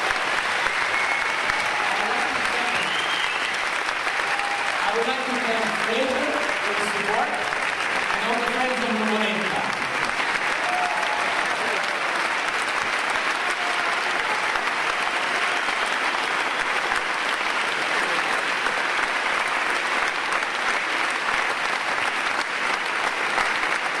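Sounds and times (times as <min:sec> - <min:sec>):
large audience applauding: 0:00.0 - 0:24.0.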